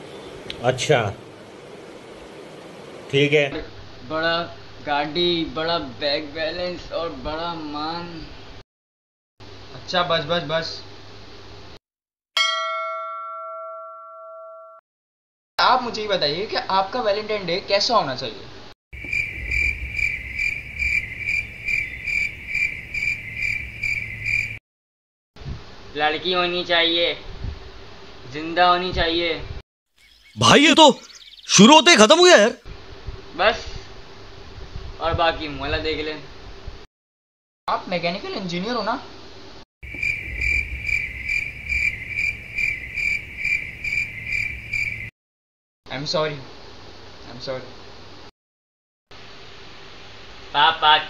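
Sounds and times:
cricket chirping: 0:19.0 - 0:24.6, 0:39.8 - 0:45.1.

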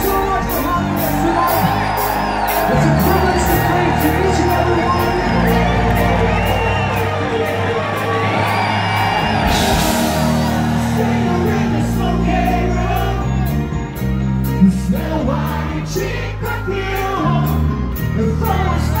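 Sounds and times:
rock band playing: 0:00.0 - 0:19.0.

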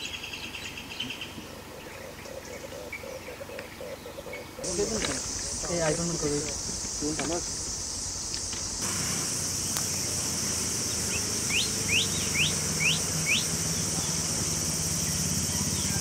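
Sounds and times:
bird chirping: 0:00.0 - 0:16.0
high-pitched insect drone: 0:04.6 - 0:16.0.

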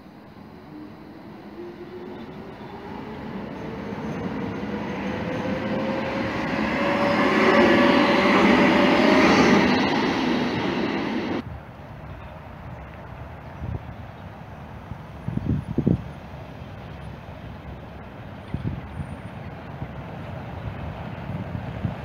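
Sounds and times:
tram passing by: 0:00.0 - 0:22.0
rising whine: 0:00.2 - 0:11.4.

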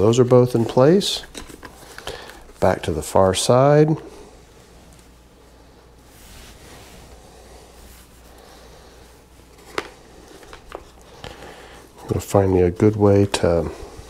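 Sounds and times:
faint rustling: 0:04.0 - 0:12.2.

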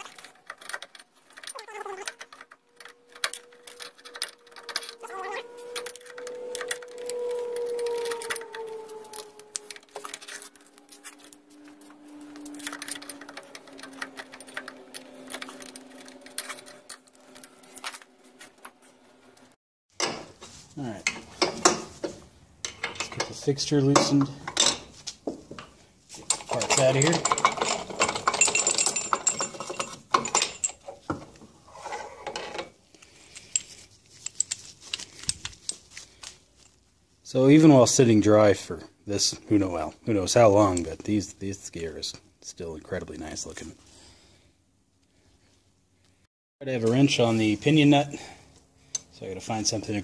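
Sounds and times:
metal gear parts clinking: 0:00.0 - 0:18.1, 0:26.1 - 0:30.9, 0:33.1 - 0:36.0
low hum: 0:02.3 - 0:19.6.

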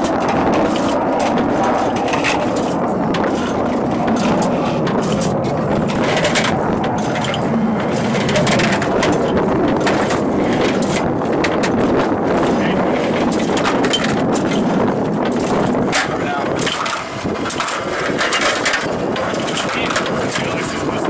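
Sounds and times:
steady mechanical din: 0:00.0 - 0:21.0
ammunition loader clattering: 0:13.2 - 0:21.0.

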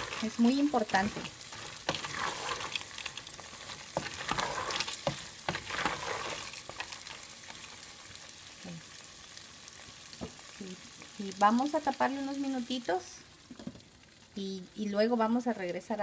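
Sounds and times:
corn kernels rattling in pot: 0:00.0 - 0:07.7
kernels popping clicks: 0:00.0 - 0:07.8
oil sizzling: 0:00.0 - 0:16.0.

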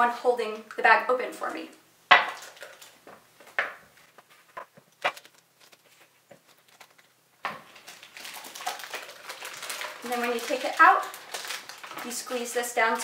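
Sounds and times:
plastic bag rustling: 0:02.2 - 0:03.1, 0:03.9 - 0:13.0.

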